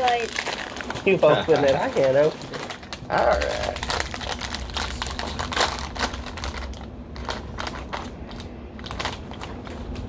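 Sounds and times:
plastic snack bag crinkling: 0.0 - 10.0.

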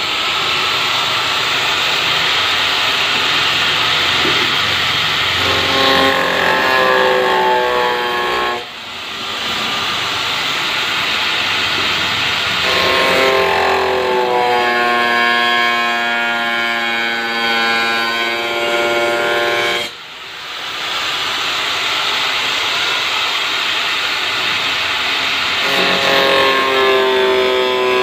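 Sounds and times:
angle grinder cutting plastic: 1.5 - 8.7, 11.7 - 19.9, 25.6 - 28.0.

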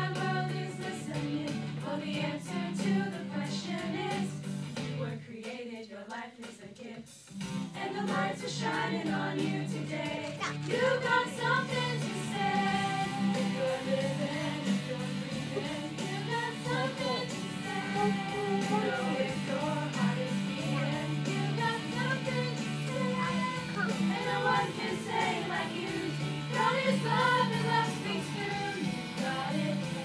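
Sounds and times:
group of people singing: 0.0 - 30.0
guitar accompaniment: 10.1 - 30.0.

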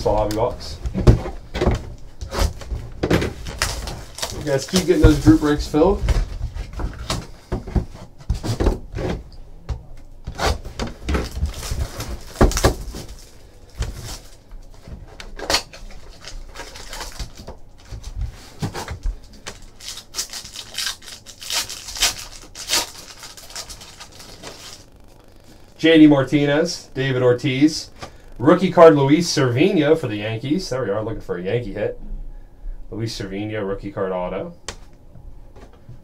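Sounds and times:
plastic shrink wrap crinkling: 1.9 - 7.2, 10.9 - 25.7
foil pack tearing: 3.3 - 6.0, 10.3 - 14.5, 15.3 - 25.6.

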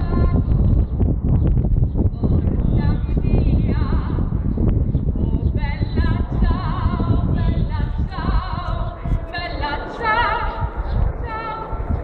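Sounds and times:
man singing through speaker: 5.1 - 12.0.

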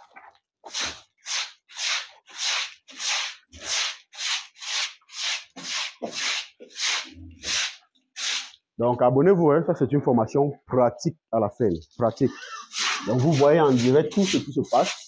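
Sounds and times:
broom sweeping wet concrete: 0.6 - 8.6, 12.4 - 15.0.

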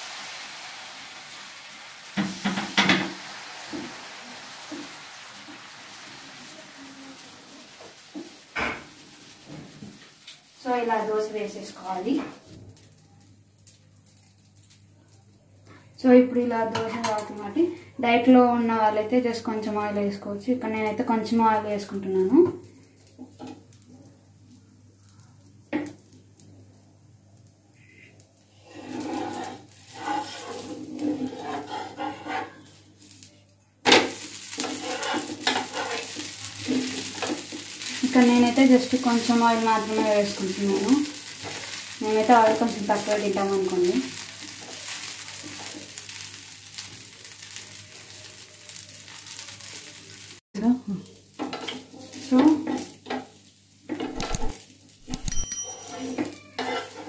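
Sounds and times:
oil sizzling on a hot pan: 0.0 - 57.0
metal spatula scraping a pan: 28.5 - 32.8, 34.5 - 38.1, 55.2 - 57.0
wooden spatula scraping: 28.6 - 32.8, 34.5 - 50.2, 53.9 - 57.0.

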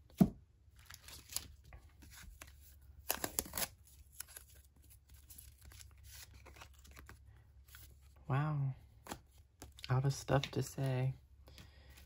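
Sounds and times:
cards clicking and scraping: 0.9 - 8.0.

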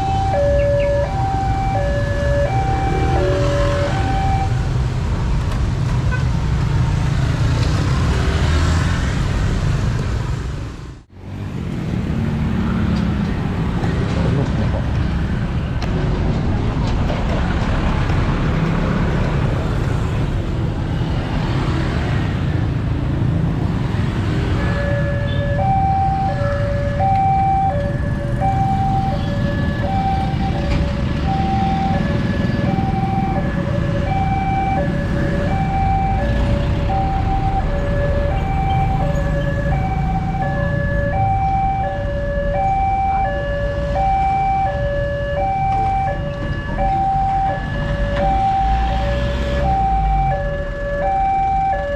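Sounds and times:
two-tone crossing alarm: 0.0 - 4.7, 24.4 - 51.9
passing motorcycles and trucks: 0.0 - 51.9.

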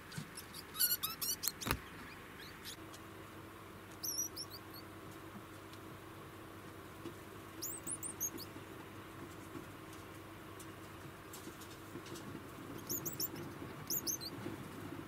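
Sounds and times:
rodents chirping: 0.0 - 3.0, 3.9 - 5.0, 7.5 - 8.6, 12.6 - 14.5.

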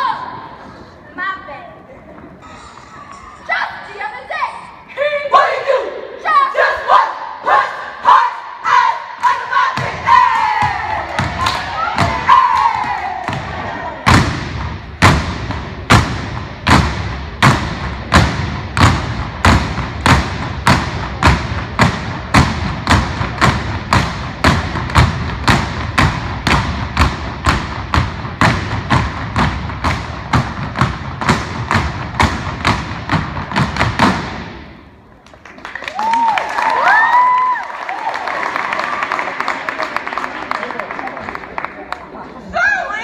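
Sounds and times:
stomping and clapping in unison: 8.0 - 42.2
people cheering: 8.7 - 14.1, 35.5 - 43.0.

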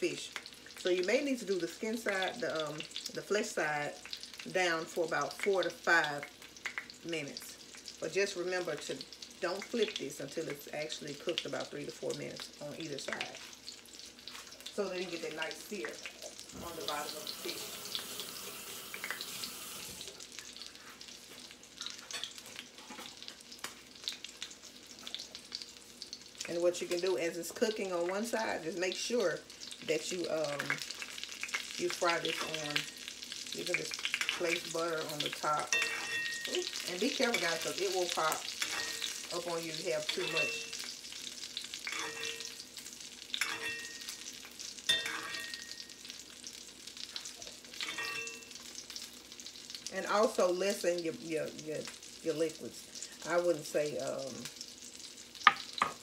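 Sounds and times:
fish sizzling in hot oil: 0.0 - 56.0
utensil clinking against pan: 35.7 - 36.7, 41.9 - 42.5, 43.4 - 44.1, 44.9 - 45.9, 47.8 - 48.4.

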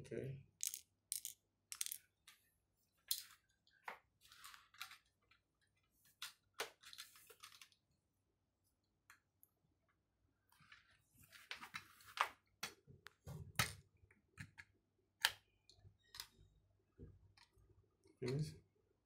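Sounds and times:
plastic toy pieces clicking: 0.6 - 2.0.

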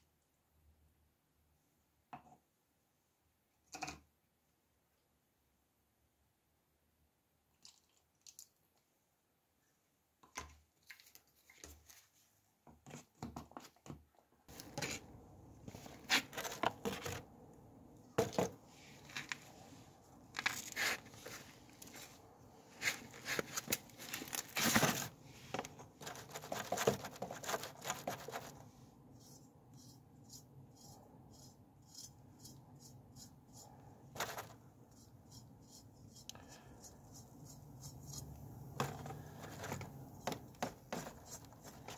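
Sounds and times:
brush scratching metal dish: 29.2 - 41.9.

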